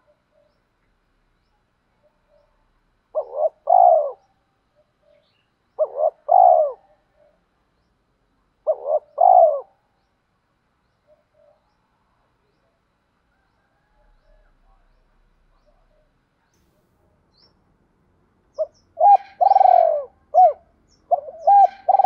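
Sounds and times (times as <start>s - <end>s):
dove cooing: 2.0s - 7.5s, 8.6s - 9.8s, 11.1s - 11.7s, 18.5s - 22.0s.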